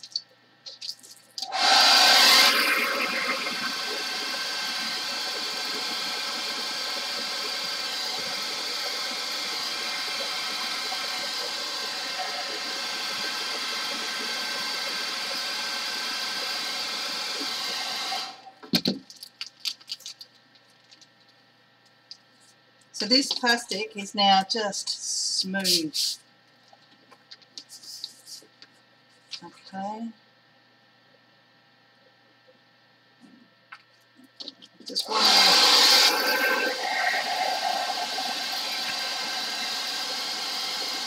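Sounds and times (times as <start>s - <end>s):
hairdryer blowing: 1.4s - 18.4s, 34.9s - 41.0s.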